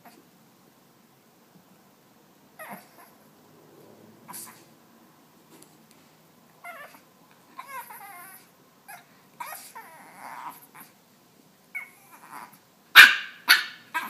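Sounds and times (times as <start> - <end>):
puppy grunting: 2.6 - 3.2, 7.6 - 11.0.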